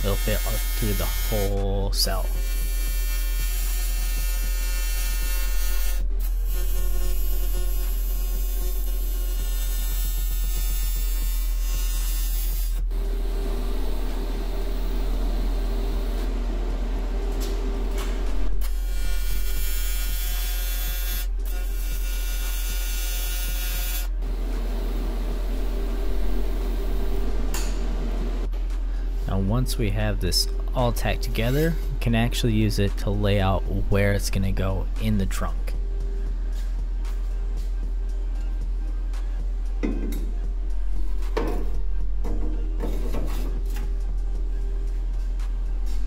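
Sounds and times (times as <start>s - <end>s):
low steady hum: 0.0s - 22.6s, 23.8s - 46.0s
welding arc buzzing: 0.0s - 28.5s.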